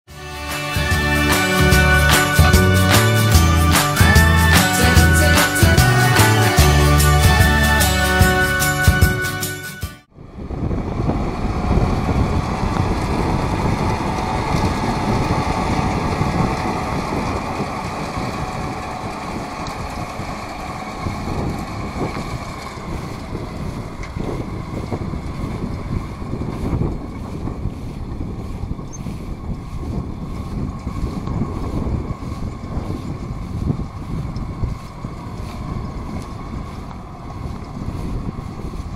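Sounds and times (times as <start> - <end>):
tractor diesel engine running: 0.1 - 38.9
wind buffeting microphone: 10.1 - 38.9.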